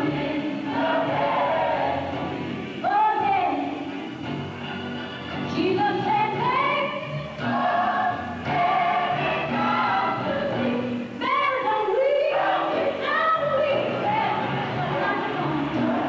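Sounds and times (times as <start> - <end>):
choir singing with accompaniment: 0.0 - 3.4, 6.2 - 16.0.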